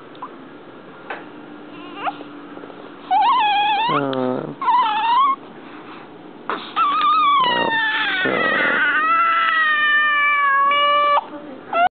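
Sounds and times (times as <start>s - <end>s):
newborn baby crying: 1.7s - 2.2s, 3.1s - 4.1s, 6.8s - 11.9s.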